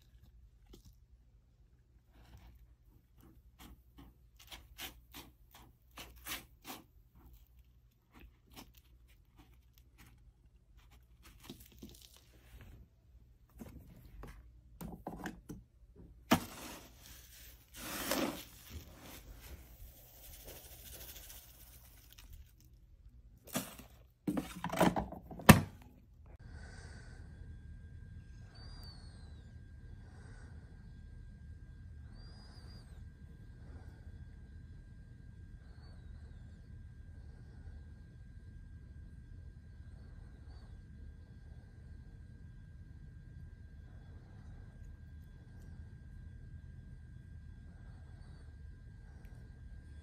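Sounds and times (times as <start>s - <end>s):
cat scratching in litter: 2.4s - 12.5s, 16.3s - 22.8s.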